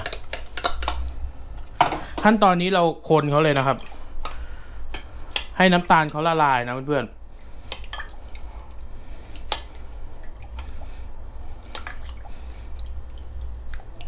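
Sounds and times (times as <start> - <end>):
low steady hum: 0.0 - 14.0
liquid sloshing: 3.4 - 6.4, 7.3 - 14.0.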